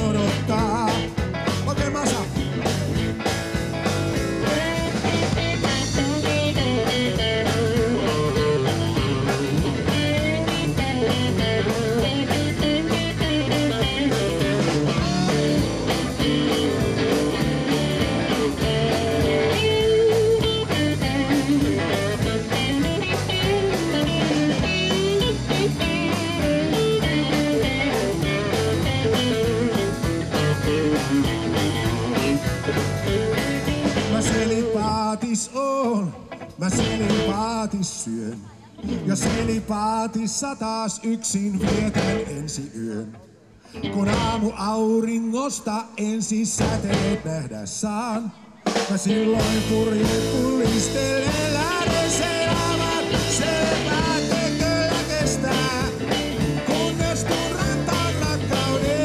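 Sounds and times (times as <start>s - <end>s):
drum kit steady beat: 0.0s - 34.8s, 36.6s - 37.5s, 38.9s - 39.8s, 41.6s - 42.4s, 46.6s - 47.3s, 48.6s - 59.0s
electric guitar lead: 0.0s - 35.0s, 48.7s - 59.0s
bass: 0.0s - 40.6s, 41.2s - 48.0s, 48.7s - 59.0s.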